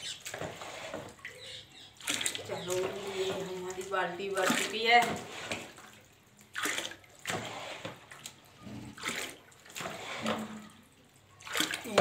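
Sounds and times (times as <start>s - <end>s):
water splashing and pouring: 0.0s - 12.0s.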